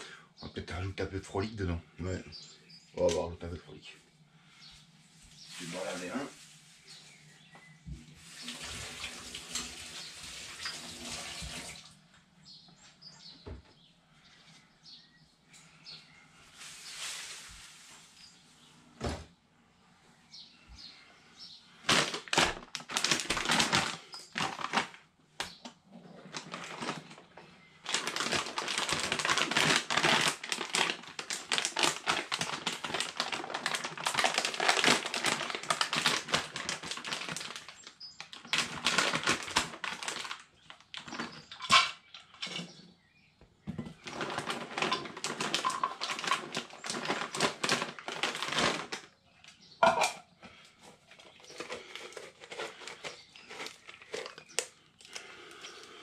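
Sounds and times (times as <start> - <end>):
dry kibble rattling into bucket: 21.8 - 42.8, 43.9 - 49.1, 51.1 - 56.0.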